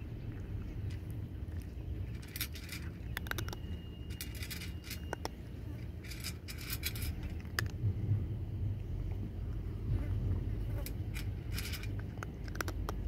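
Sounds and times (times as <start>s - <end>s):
cat crunching kibble: 0.0s - 7.9s, 10.4s - 13.0s
steady low rumble: 0.0s - 13.0s
kibble clicking on metal bowl: 0.9s - 5.4s, 6.0s - 7.8s, 11.0s - 13.0s.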